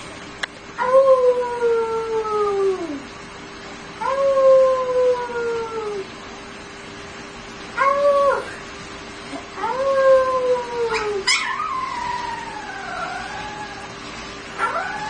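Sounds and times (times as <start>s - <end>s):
puppy howling: 0.8s - 3.1s, 4.0s - 6.1s, 7.8s - 8.6s, 9.6s - 14.0s, 14.6s - 15.0s.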